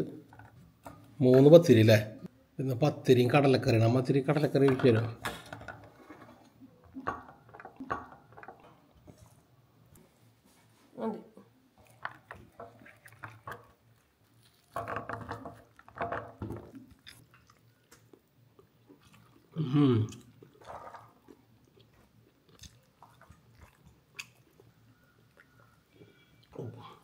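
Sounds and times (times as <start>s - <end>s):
person chewing food: 11.8s - 26.6s
mouth clicks and smacks: 16.7s - 26.6s.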